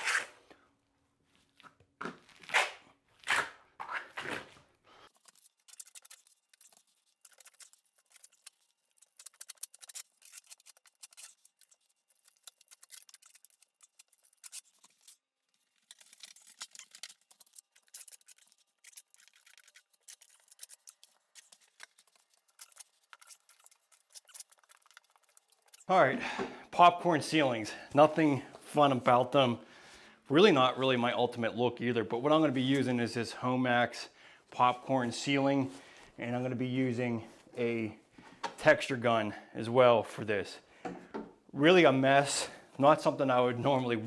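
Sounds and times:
trowel scraping wet plaster: 0.0s - 0.4s.

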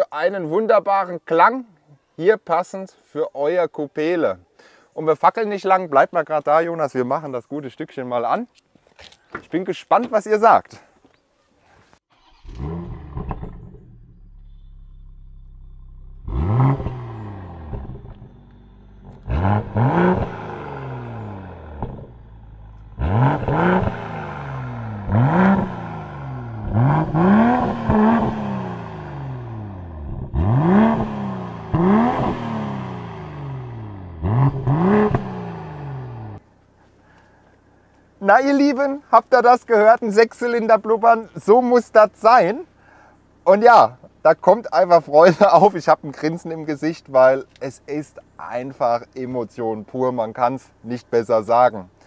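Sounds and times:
car engine starting and revving: 12.1s - 36.4s
car engine idling and burbling: 12.1s - 38.0s.

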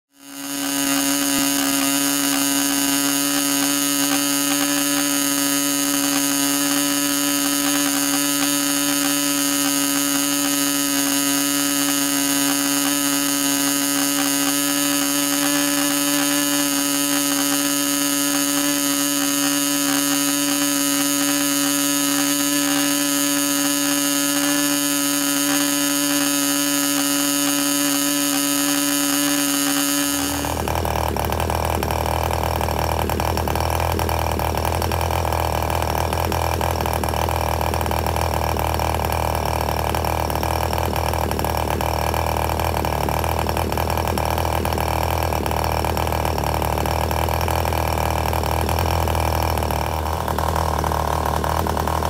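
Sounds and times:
model engine whining: 0.1s - 52.0s.

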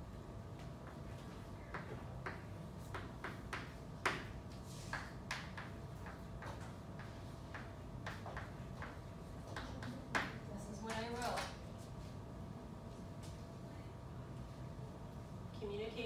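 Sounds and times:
room hum: 0.0s - 16.0s
chalk tapping and scraping: 1.7s - 10.4s.

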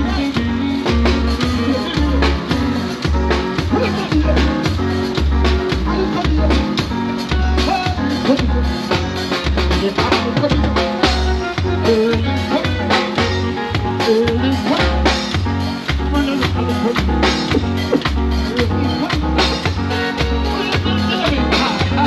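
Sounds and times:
person singing: 0.0s - 5.1s, 5.8s - 22.0s
pulsing bass beat: 15.4s - 22.0s.

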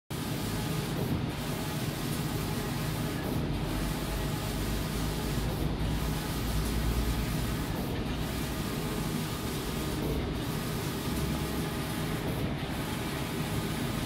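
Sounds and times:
printer carriage whirring: 0.1s - 14.0s.

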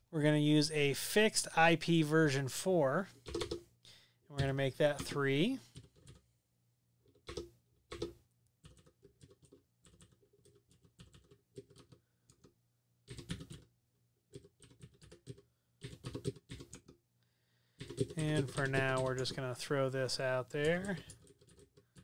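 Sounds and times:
computer keyboard typing: 3.2s - 3.6s, 4.4s - 6.2s, 7.0s - 13.7s, 14.3s - 17.0s, 17.8s - 19.4s, 20.6s - 22.0s.

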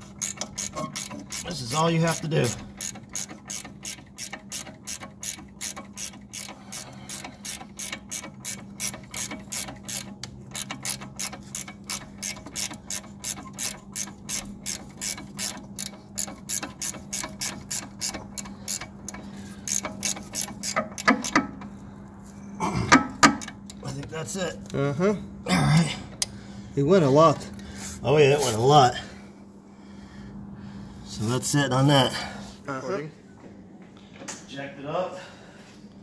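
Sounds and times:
hand ratchet clicking: 0.1s - 21.7s, 22.9s - 23.8s.

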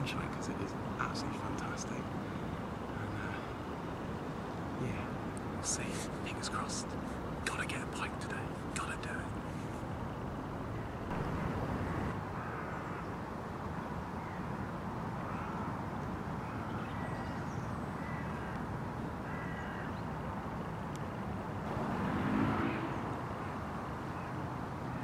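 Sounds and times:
steady rushing noise: 0.0s - 16.5s, 20.2s - 25.0s
low hum: 8.2s - 14.0s
faint short bird calls: 19.2s - 20.0s.

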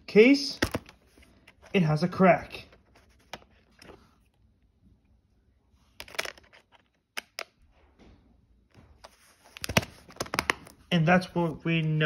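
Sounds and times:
plastic case clicks and rustling: 6.0s - 7.5s.

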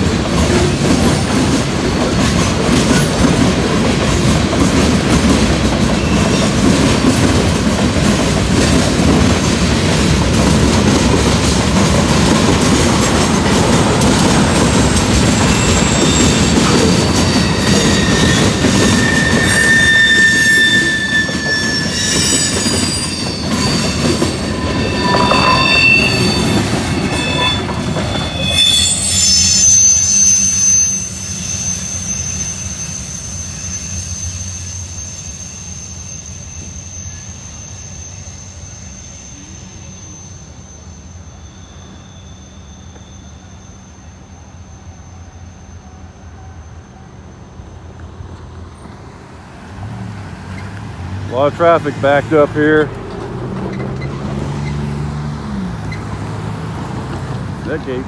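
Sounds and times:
freight train rumbling past: 0.0s - 58.0s
train wheels squealing: 0.0s - 58.0s
thin steady high tone: 29.2s - 47.6s.

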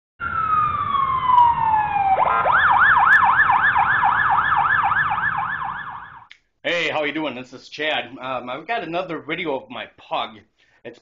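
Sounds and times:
electronic siren wailing and yelping: 0.2s - 6.3s.

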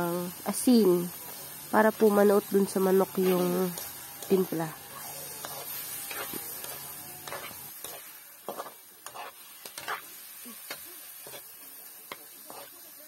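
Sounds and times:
faint sizzle: 0.0s - 13.0s
metal spatula scraping frying pan: 3.0s - 11.6s, 12.4s - 12.8s.

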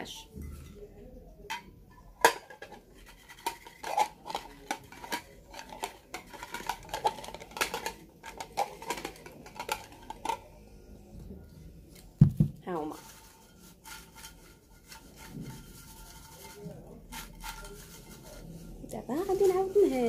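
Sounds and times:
paper slips rattling in bowl: 2.3s - 10.5s, 12.7s - 20.0s.

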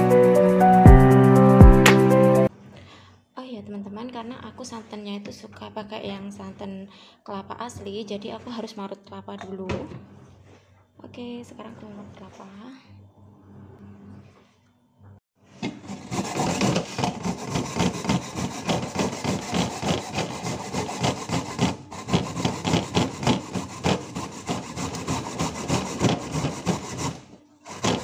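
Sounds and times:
coconut grating on metal grater: 15.6s - 28.0s.

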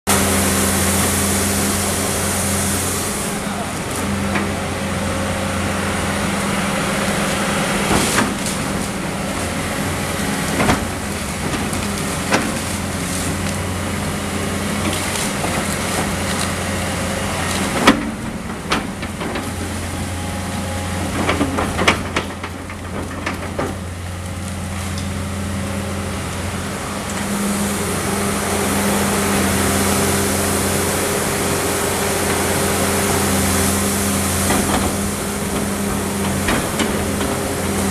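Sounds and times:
excavator diesel engine running: 0.1s - 37.9s
demolition debris crashing: 7.3s - 25.4s.

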